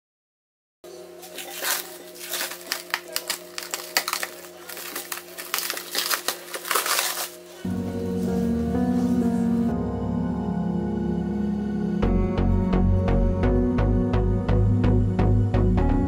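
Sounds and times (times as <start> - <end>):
cling wrap crinkling: 1.2 - 9.5.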